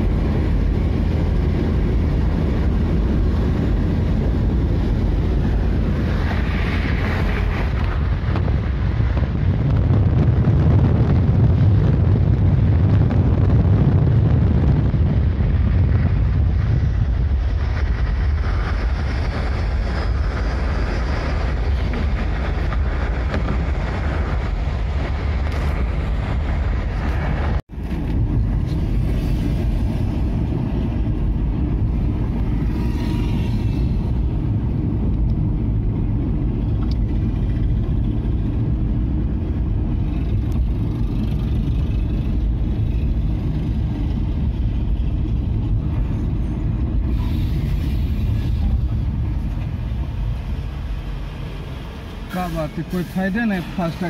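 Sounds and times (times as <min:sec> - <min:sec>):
car road and engine rumble: 0:00.0 - 0:54.0
wind and tyre hiss: 0:00.0 - 0:54.0.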